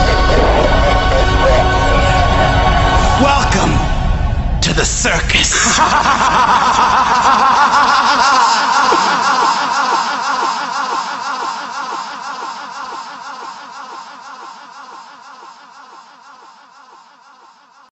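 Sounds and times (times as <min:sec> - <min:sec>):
man laughing theatrically: 0:05.4 - 0:17.4.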